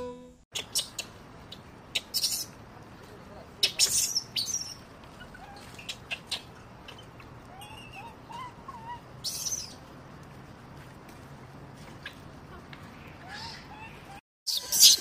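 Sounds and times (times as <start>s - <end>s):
high-pitched animal squeaks: 3.6s - 9.8s.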